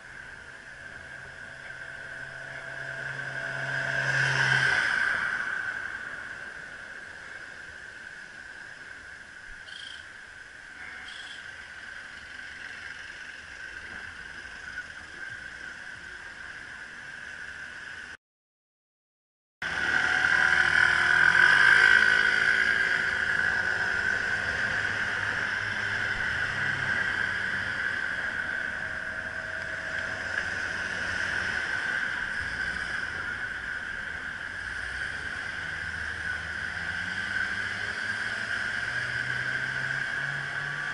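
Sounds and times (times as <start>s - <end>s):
road traffic: 0.0s - 18.2s, 19.6s - 40.9s
vehicle engines close by: 0.0s - 18.2s, 19.6s - 40.9s.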